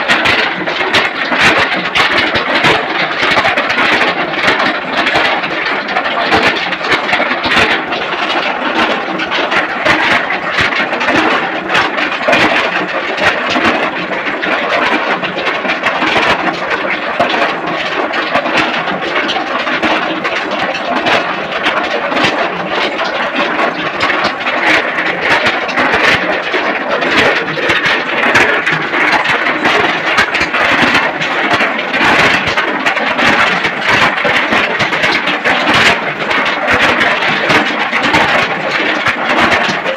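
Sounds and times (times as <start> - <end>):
machine clattering: 0.0 - 39.9.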